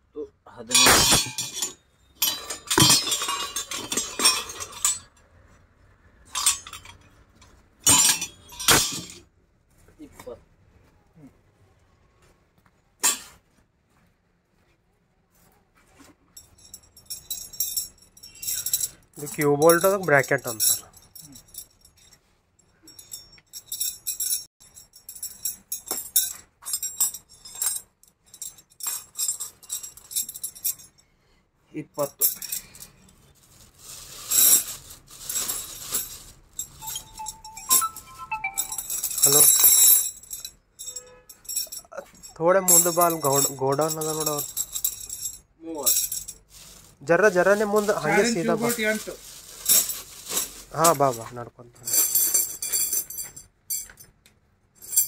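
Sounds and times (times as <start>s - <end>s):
plumbing fittings clinking and rattling: 0.8s - 5.1s, 6.3s - 7.1s, 7.9s - 9.2s, 34.3s - 40.4s.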